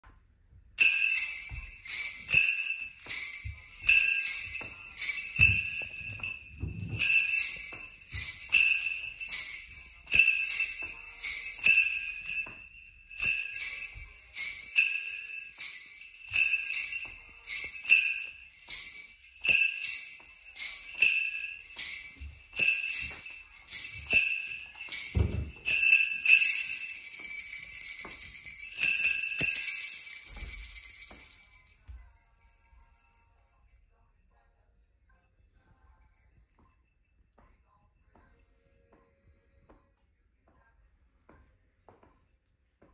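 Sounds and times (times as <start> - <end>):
sleigh bells jingling: 0.8 - 33.9
wrist bell shaken: 0.8 - 33.9.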